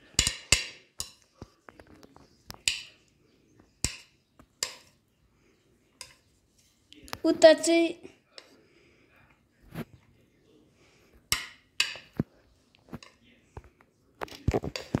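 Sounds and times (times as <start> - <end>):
chopsticks clicking on a plate: 3.8 - 5.0, 6.0 - 6.2.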